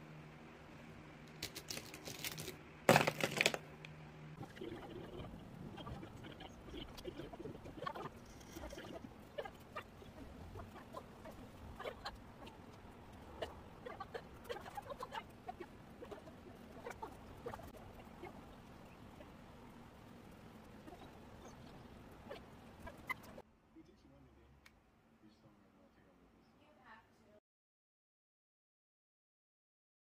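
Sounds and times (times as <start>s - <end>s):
low steady hum: 0.0s - 27.4s
paper rustle: 1.3s - 3.6s.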